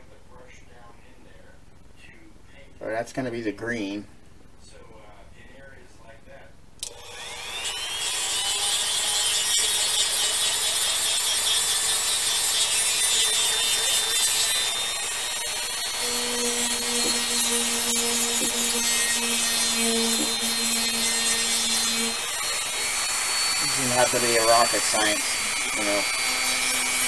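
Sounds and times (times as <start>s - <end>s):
rotary tool grinding plastic: 6.8s - 27.0s.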